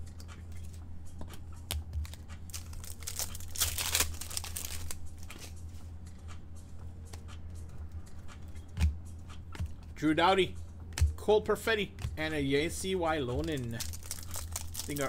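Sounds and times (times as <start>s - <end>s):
foil wrapper tearing and crinkling: 2.5s - 5.0s, 13.4s - 15.0s.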